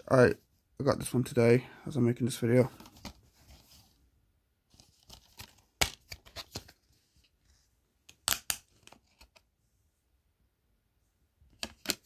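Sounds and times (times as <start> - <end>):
plastic case clicks and crackles: 11.6 - 12.0.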